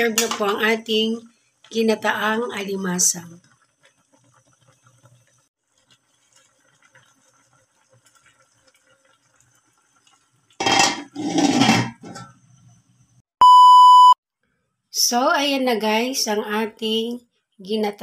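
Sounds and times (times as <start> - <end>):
food simmering in a wok: 2.7 - 13.2
utensil scraping a pan: 10.6 - 12.4
high test-pattern beep: 13.4 - 14.2.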